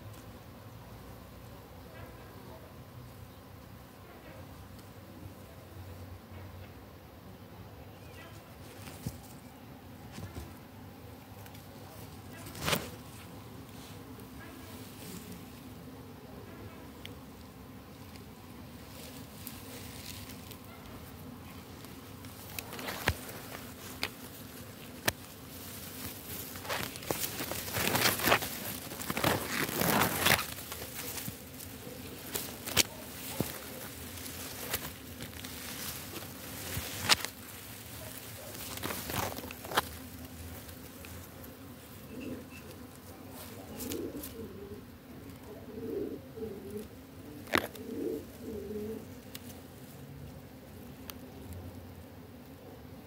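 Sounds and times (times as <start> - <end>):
insects buzzing in grass: 0.0 - 53.0
dove cooing: 18.9 - 49.9.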